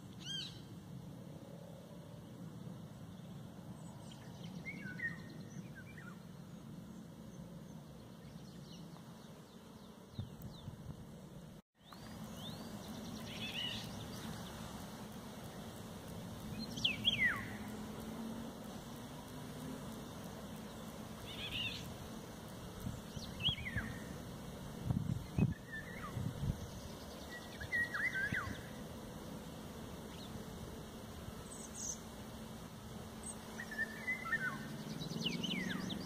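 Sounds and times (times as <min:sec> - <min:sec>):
bird calling: 0:16.5 - 0:17.7, 0:27.3 - 0:28.7.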